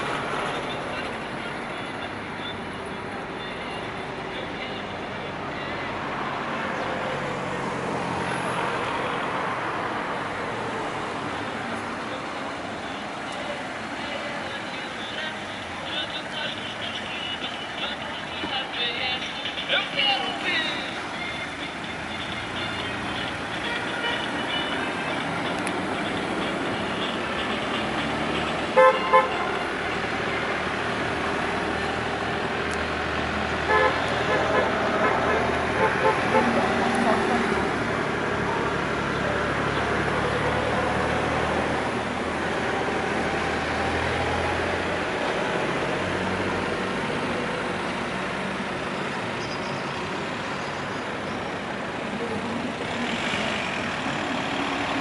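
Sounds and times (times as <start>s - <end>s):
cars and truck driving past: 0.0s - 55.0s
car horns honking: 14.9s - 30.4s, 33.6s - 36.9s.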